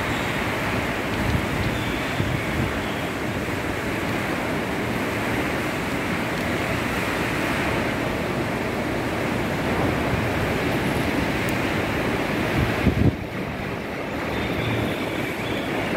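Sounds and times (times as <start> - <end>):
heavy rain pouring: 0.0 - 15.9.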